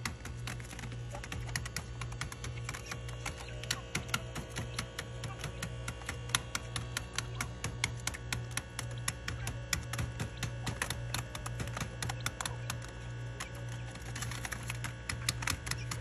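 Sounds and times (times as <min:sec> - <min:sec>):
quail pecking and tapping: 0:00.0 - 0:16.0.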